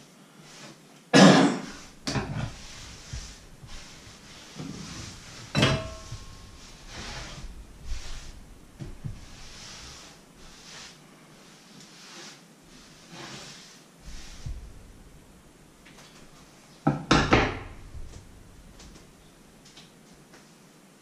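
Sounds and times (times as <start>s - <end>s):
objects knocking on wooden worktop: 16.9s - 18.2s.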